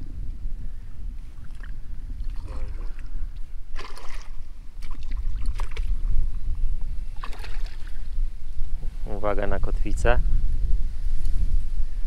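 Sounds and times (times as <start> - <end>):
wind on microphone: 0.0 - 12.0
water splashing: 3.7 - 6.0, 7.2 - 8.0.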